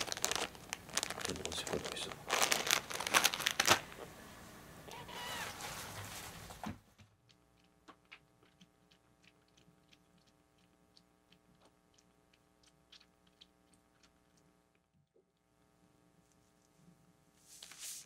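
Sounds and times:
rustling: 5.0s - 6.8s
kitten suckling on a bottle: 7.1s - 15.5s.

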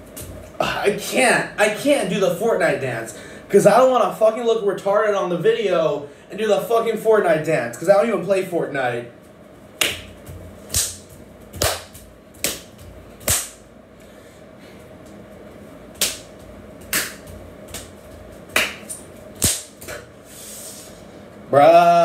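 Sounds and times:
faint steady hum: 0.0s - 22.0s
sharp percussive dance hits: 9.8s - 13.7s, 16.0s - 17.9s, 18.5s - 20.1s.

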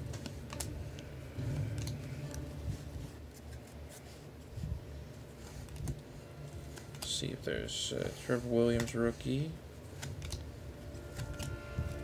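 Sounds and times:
cards sliding against stack: 0.0s - 7.3s, 7.9s - 12.0s.

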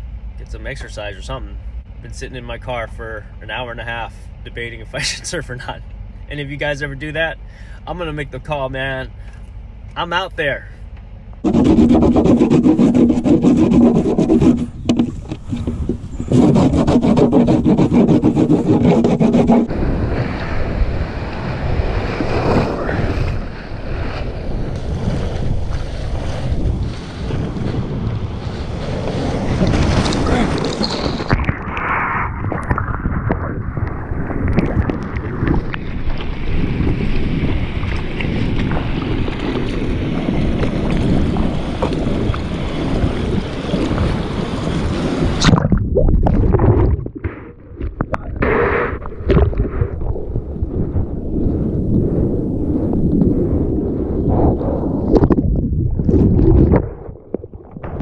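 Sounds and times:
wax rubbed on surfboard: 11.4s - 20.3s
wind on microphone: 11.4s - 58.0s
water rushing and splashing: 19.7s - 50.6s.

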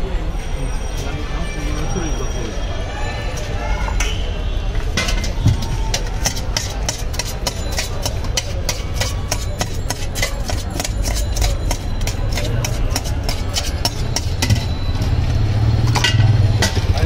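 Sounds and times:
spoon clanking against steel tin: 4.9s - 17.0s.

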